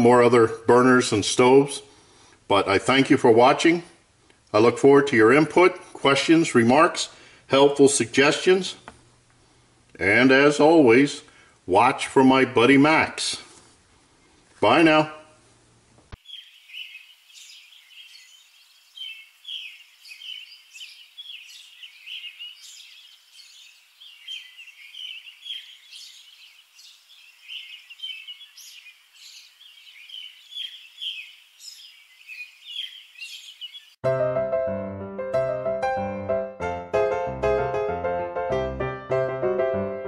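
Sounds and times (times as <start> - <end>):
small birds chirping: 16.1 - 34.0
piano tune: 34.0 - 40.0.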